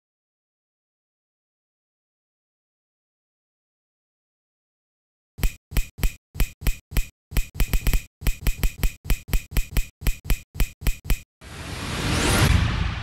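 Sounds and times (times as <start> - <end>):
whoosh: 11.4 - 13.0.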